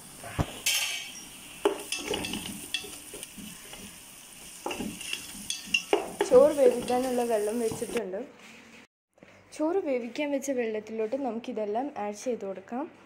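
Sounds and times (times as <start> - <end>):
onions sizzling in oil: 0.0 - 8.0
spatula scraping pot: 1.6 - 4.0, 4.6 - 8.0
spatula knocking against pot: 4.6 - 7.1.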